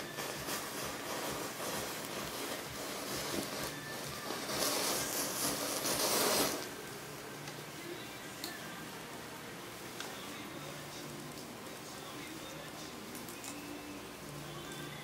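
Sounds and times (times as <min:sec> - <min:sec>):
burning matchsticks hissing: 0:00.0 - 0:06.8
small crackles of fire: 0:00.0 - 0:15.0.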